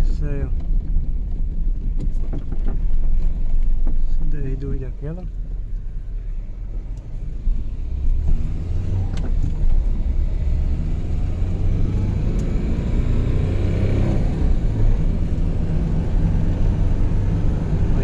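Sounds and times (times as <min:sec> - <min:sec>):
car engine droning in cabin: 0:00.0 - 0:18.0.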